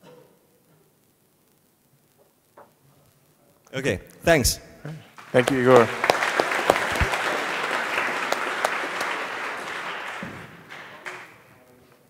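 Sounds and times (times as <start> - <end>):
audience applauding: 5.1 - 11.8.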